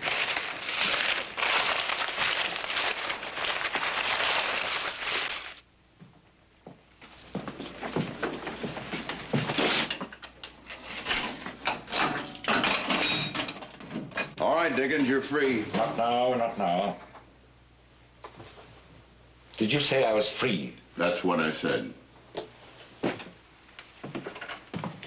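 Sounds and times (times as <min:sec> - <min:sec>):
banknotes rustling: 0:00.0 - 0:05.6
footsteps: 0:00.0 - 0:10.1
coins clinking: 0:04.2 - 0:05.3, 0:07.0 - 0:07.6, 0:10.5 - 0:13.4.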